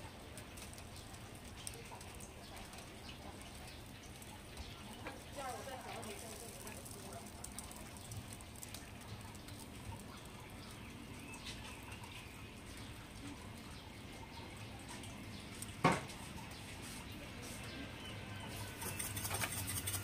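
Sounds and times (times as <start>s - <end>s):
wooden spreader scraping griddle: 18.5s - 20.0s.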